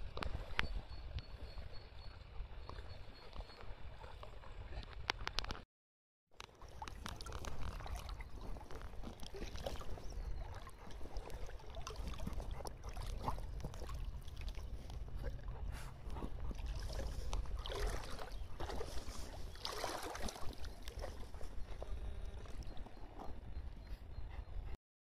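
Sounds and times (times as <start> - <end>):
dogs splashing through water: 6.5 - 23.4
heavy splashes: 19.6 - 20.6.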